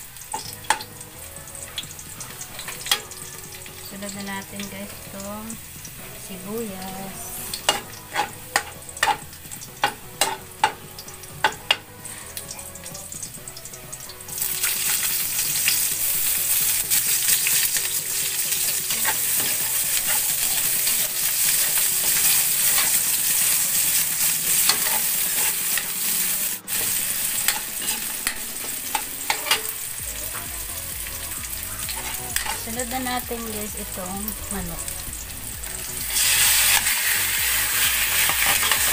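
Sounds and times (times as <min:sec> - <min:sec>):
onion sizzling in hot oil: 0:00.0 - 0:38.9
metal spatula scraping wok: 0:07.3 - 0:10.8, 0:18.6 - 0:29.9, 0:31.9 - 0:32.8, 0:35.5 - 0:38.9.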